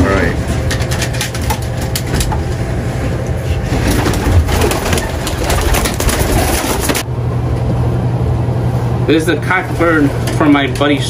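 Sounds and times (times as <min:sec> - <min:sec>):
quick clicks and rustles: 0:03.7 - 0:07.0.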